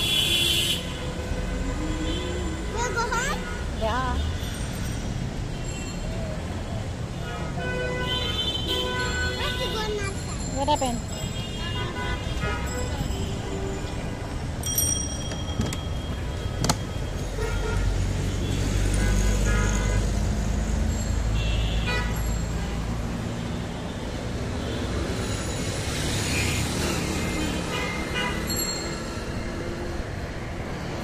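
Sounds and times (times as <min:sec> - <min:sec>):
steady road noise: 0:00.0 - 0:31.0.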